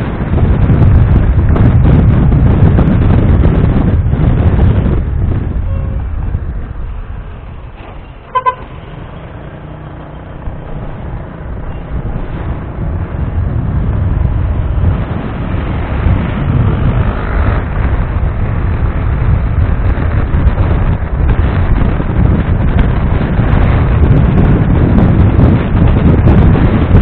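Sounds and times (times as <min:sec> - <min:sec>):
motorcycle road noise: 0:00.0 - 0:27.0
wind rumble on microphone: 0:00.0 - 0:27.0
horn beep: 0:08.1 - 0:09.0.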